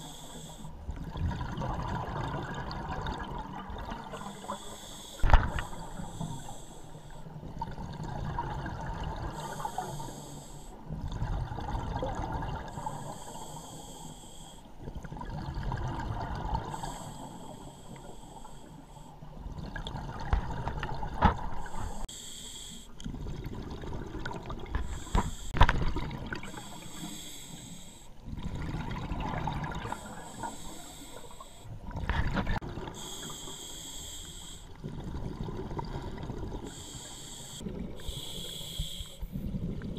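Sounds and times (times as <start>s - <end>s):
hissing regulator inhale: 0.0s - 0.8s, 4.1s - 7.4s, 9.3s - 10.9s, 12.7s - 14.8s, 16.5s - 19.3s, 21.5s - 23.0s, 24.8s - 25.6s, 26.4s - 28.2s, 29.8s - 31.8s, 32.9s - 34.8s, 36.6s - 39.4s
rumble of exhaled bubbles: 0.8s - 4.3s, 7.3s - 9.4s, 10.9s - 12.8s, 14.8s - 16.8s, 19.3s - 22.0s, 23.0s - 26.6s, 28.2s - 30.1s, 34.8s - 36.8s, 37.6s - 38.3s, 39.2s - 39.9s.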